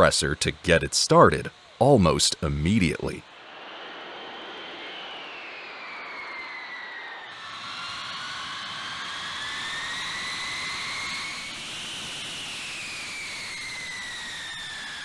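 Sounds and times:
jet engines whining and roaring: 0.0s - 15.0s.

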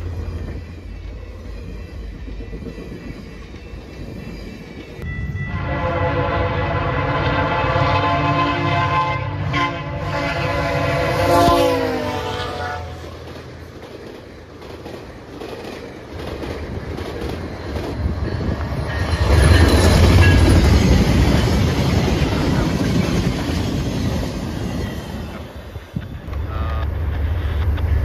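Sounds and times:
train rumble: 0.0s - 28.0s
train wheels clicking on rail joints: 12.9s - 28.0s.

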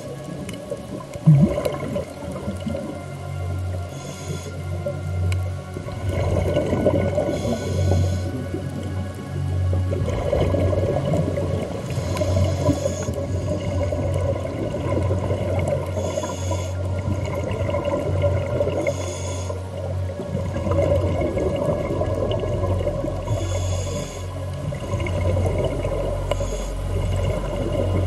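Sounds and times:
bubbling exhalations: 0.5s - 2.9s
regulator hissing inhalation: 3.9s - 4.7s, 7.3s - 8.5s, 11.9s - 13.8s, 15.9s - 16.9s, 18.8s - 19.7s, 23.3s - 24.4s, 26.3s - 26.8s.

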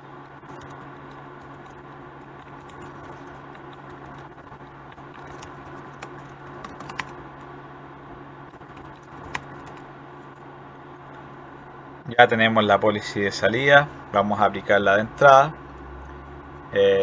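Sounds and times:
steady low hum: 0.0s - 17.0s
keyboard key clicks: 4.9s - 7.1s, 8.7s - 9.8s.

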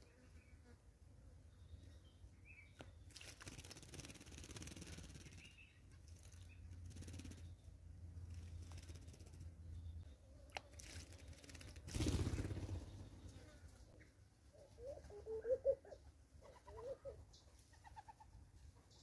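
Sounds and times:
bird splashing in water: 3.1s - 5.3s, 10.5s - 12.9s
faint bird chirps: 12.4s - 18.3s.

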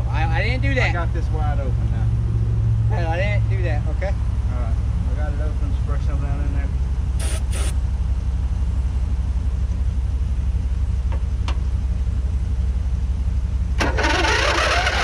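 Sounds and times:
aerosol spray hisses: 7.2s - 7.7s
lawn mower engine running: 7.2s - 7.8s, 13.8s - 15.0s.

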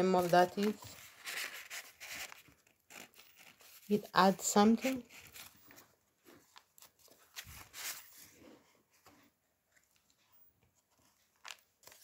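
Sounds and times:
paper pages turning: 0.0s - 12.0s.

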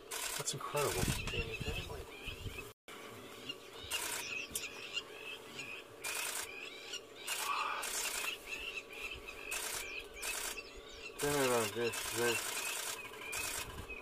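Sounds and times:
rapid camera shutter clicks: 0.0s - 1.3s, 3.9s - 4.4s, 6.0s - 6.6s, 7.2s - 8.4s, 9.5s - 14.0s
shrill lapwing calls: 0.1s - 14.0s.

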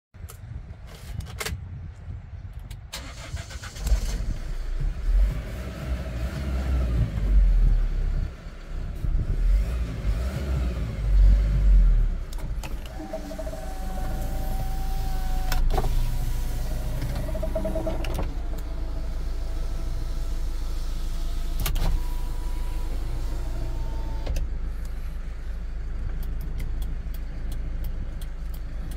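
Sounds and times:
short whining tones: 12.7s - 24.3s
truck engine idling: 12.8s - 28.9s
sharp clicks: 26.0s - 28.9s.

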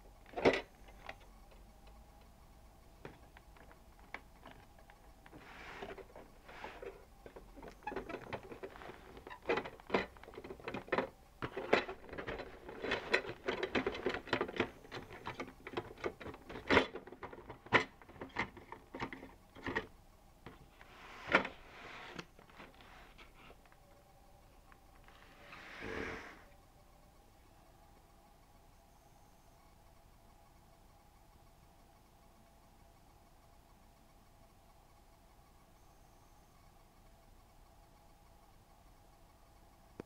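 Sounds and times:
hands handling boxed plastic toy: 3.1s - 19.9s.

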